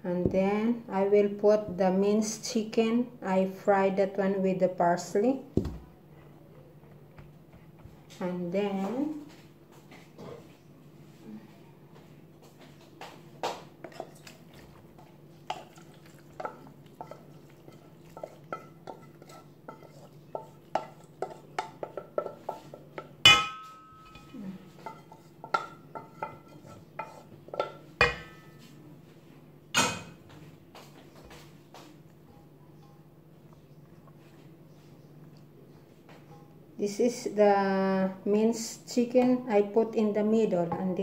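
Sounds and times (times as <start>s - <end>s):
metal utensil scraping a pot: 17.0s - 21.4s, 26.0s - 27.3s.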